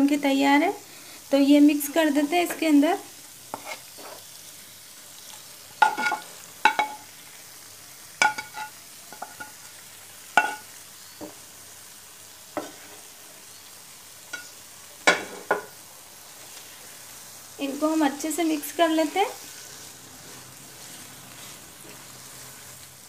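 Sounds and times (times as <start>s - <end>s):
faint sizzle from pan: 0.0s - 23.0s
food scraped into frying pan: 3.5s - 4.3s, 12.6s - 13.1s, 19.0s - 22.8s.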